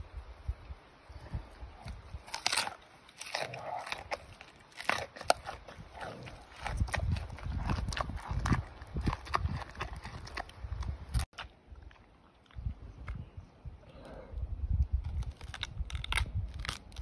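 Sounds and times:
panda crunching pumpkin: 0:01.8 - 0:12.1, 0:14.9 - 0:17.0.

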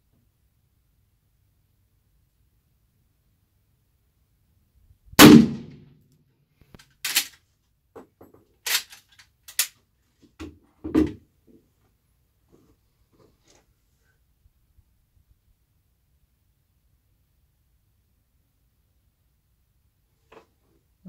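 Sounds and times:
rifle shot: 0:05.2 - 0:05.9
rifle action metallic clacks: 0:06.7 - 0:07.4, 0:08.6 - 0:09.8.

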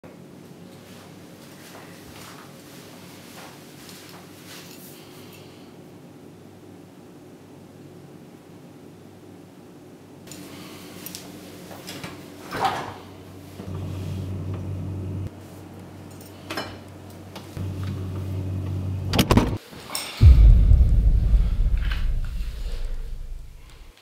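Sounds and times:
loud deep rumble: 0:20.2 - 0:23.9.

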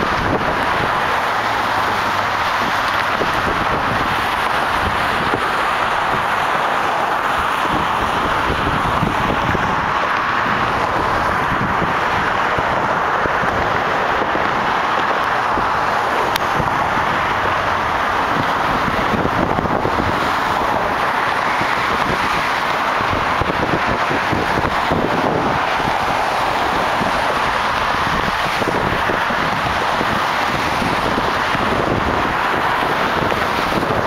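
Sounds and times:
tyres rushing on roadway: 0:00.0 - 0:34.0
wind buffeting microphone: 0:00.0 - 0:34.0.

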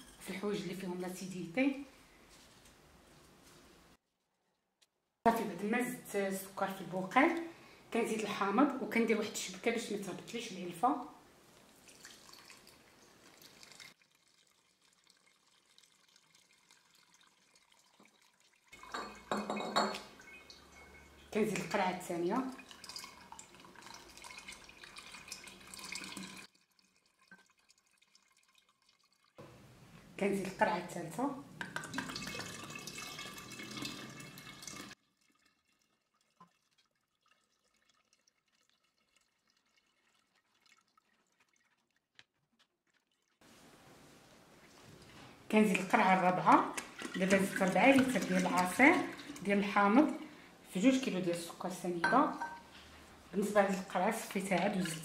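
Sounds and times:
juice trickling through a strainer: 0:11.2 - 0:30.2, 0:31.6 - 0:51.9, 0:52.5 - 0:55.0.

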